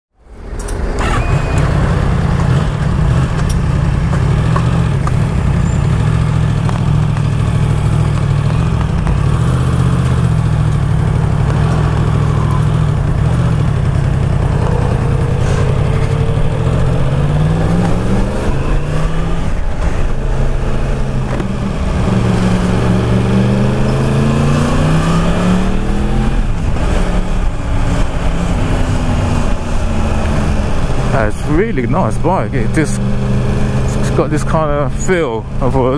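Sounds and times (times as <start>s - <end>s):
motorcycle engine: 0.2s - 35.9s
wind rush: 13.0s - 23.2s.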